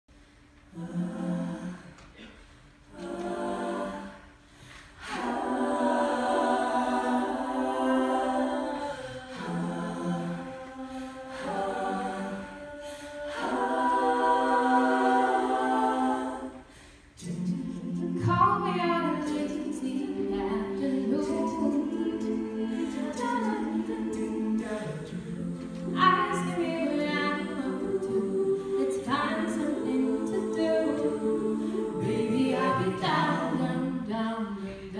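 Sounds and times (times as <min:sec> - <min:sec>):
women's group singing chords: 0:00.6 - 0:34.9.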